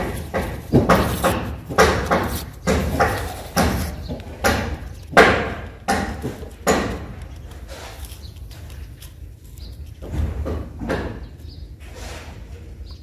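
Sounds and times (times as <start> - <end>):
scraping strokes on paper: 0.0 - 5.0, 6.7 - 9.7.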